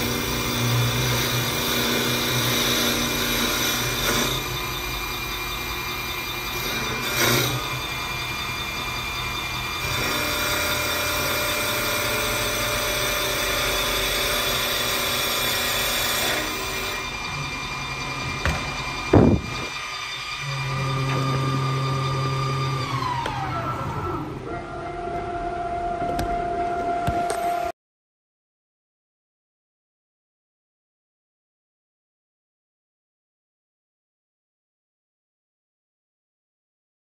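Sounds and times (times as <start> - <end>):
cutter shaving wood: 0.0 - 25.0
lathe motor whine: 0.0 - 27.7.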